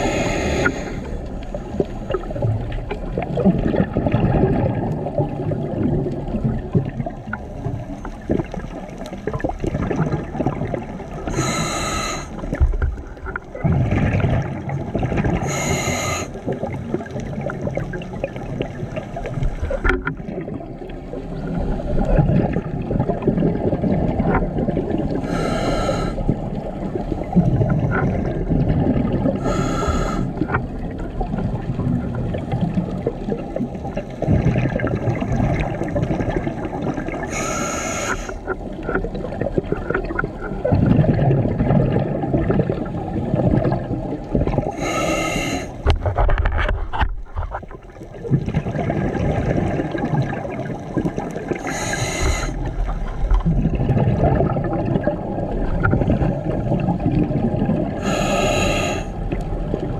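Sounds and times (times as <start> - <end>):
regulator hissing inhales: 0.0 - 1.2, 11.3 - 12.4, 15.4 - 16.4, 25.2 - 26.2, 29.4 - 30.4, 37.3 - 38.4, 44.8 - 45.8, 51.6 - 52.6, 58.0 - 59.1
exhaled bubbles gurgling: 0.0 - 59.9.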